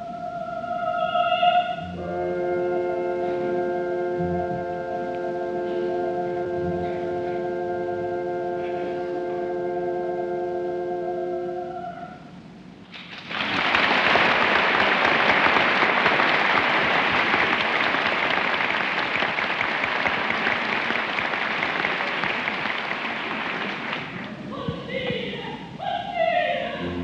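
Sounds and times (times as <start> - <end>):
held music chord: 1.8 - 12.2, 26.7 - 27.0
audience applause: 12.9 - 24.4.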